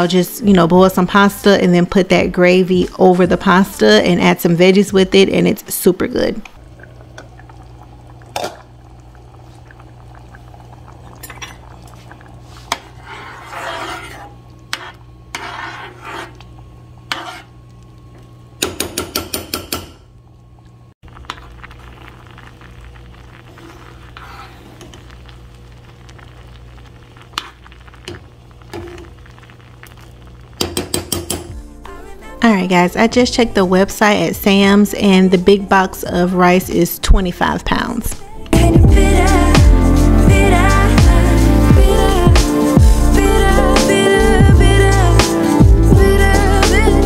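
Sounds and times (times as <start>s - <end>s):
steady low hum: 0.0s - 47.0s
metal spoon scraping saucepan: 12.7s - 16.5s, 17.1s - 17.6s.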